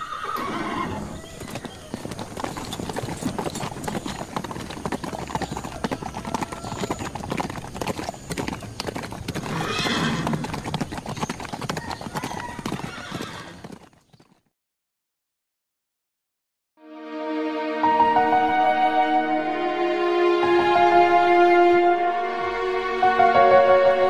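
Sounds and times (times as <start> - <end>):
horse whinnying: 0.0 - 1.9, 9.4 - 10.7, 11.8 - 13.7
horses galloping on grass: 0.0 - 14.5.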